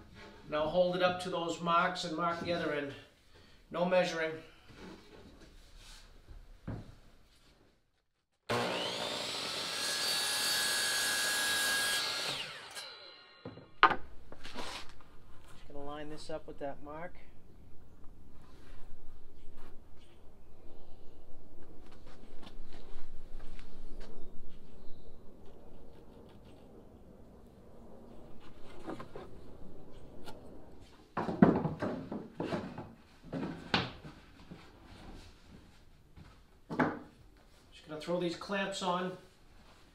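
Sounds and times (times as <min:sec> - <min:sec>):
saw blade winding down: 0:08.5 - 0:13.4
miter saw cutting wood: 0:08.5 - 0:13.6
wood rubbing and scraping: 0:28.1 - 0:35.6
wooden knocks: 0:31.2 - 0:33.5.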